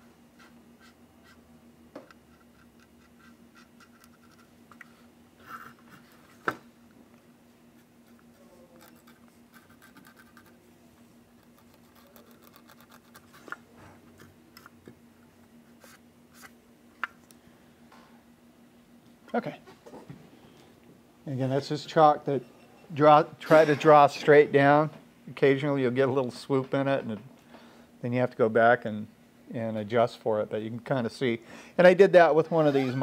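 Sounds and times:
steady low hum: 0.0s - 33.0s
brush scratching on plastic: 7.8s - 10.6s, 11.4s - 13.6s.

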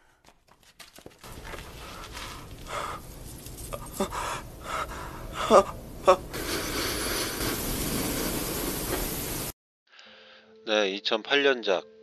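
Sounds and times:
person panting heavily: 1.6s - 3.1s, 3.8s - 7.4s
strained gasps: 1.6s - 5.7s, 9.9s - 10.5s.

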